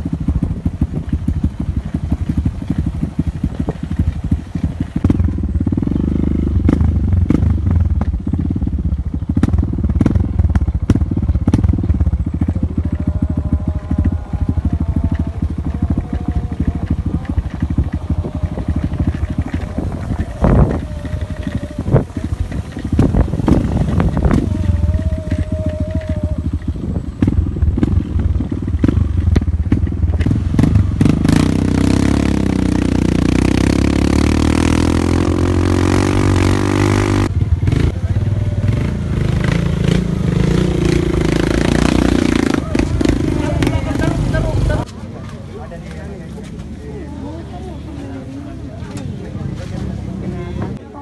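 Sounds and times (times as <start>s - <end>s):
knocks and rattles from rough ground: 0.0s - 33.4s
motorcycle engine rumbling: 0.0s - 51.0s.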